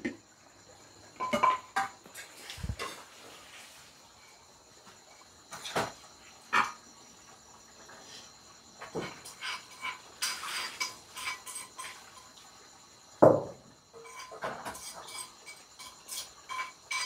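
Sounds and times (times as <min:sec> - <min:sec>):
pots and metal utensils clinking: 0:01.2 - 0:03.4, 0:05.5 - 0:06.9, 0:08.8 - 0:12.5, 0:13.9 - 0:17.0.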